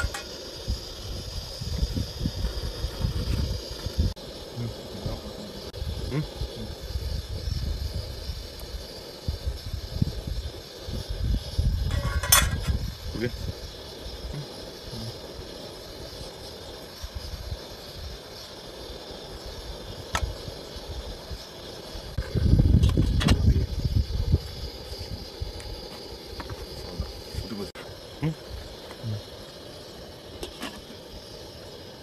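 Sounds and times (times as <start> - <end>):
wind gusts on microphone: 0.0 - 8.6, 9.3 - 13.7, 22.1 - 25.6
faint steady hiss: 0.0 - 32.0
metal cookware clinking: 11.9 - 12.7.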